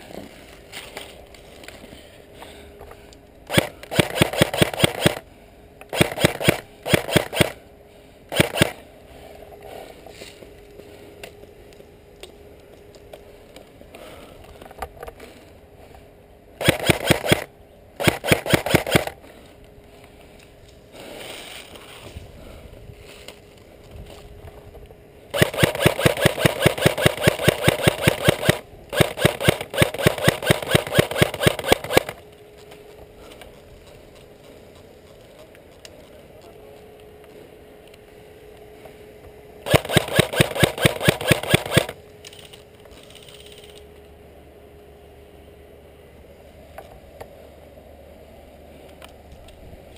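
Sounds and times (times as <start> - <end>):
airsoft rifle firing bursts: 3.5 - 5.2, 5.9 - 7.6, 8.3 - 8.8, 16.6 - 19.2, 25.3 - 32.2, 39.6 - 42.0.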